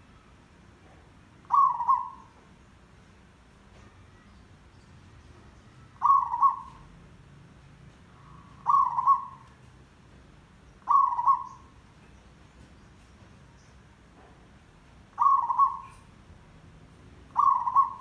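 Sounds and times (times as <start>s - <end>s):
dove cooing: 1.4s - 2.4s, 6.0s - 6.9s, 8.2s - 9.4s, 10.8s - 11.7s, 15.1s - 16.1s, 17.3s - 18.0s.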